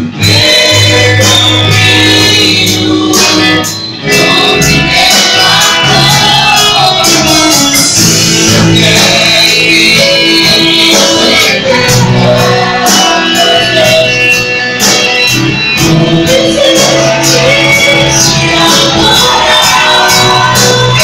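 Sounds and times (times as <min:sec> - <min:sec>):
drums with steady beat: 0:00.0 - 0:21.0
electric guitar: 0:00.0 - 0:21.0
women singing into microphones: 0:00.1 - 0:14.4, 0:16.1 - 0:21.0.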